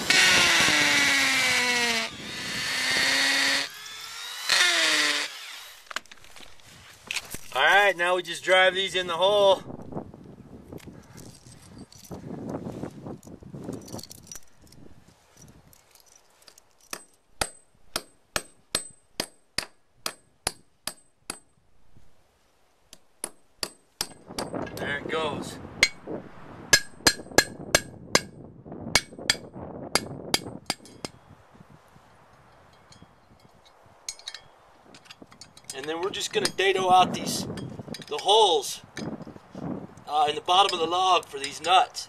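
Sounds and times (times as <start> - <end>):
hammer striking metal anchors: 16.8 - 21.6, 22.9 - 24.8, 26.7 - 28.3, 29.0 - 31.2, 34.1 - 36.8.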